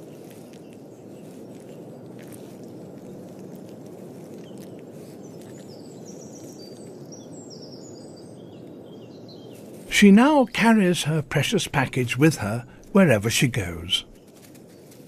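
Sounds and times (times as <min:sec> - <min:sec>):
low outdoor hiss: 0:05.1 - 0:15.0.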